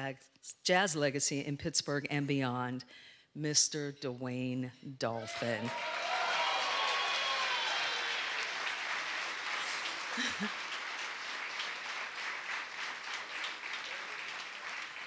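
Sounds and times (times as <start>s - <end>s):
shout from crowd: 5.2s - 8.6s
audience applauding: 5.6s - 15.0s.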